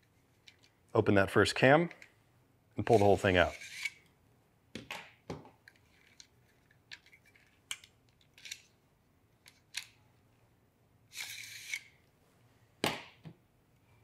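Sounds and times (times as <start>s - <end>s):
tripod leg scraping: 2.9s - 4.0s, 11.1s - 12.0s.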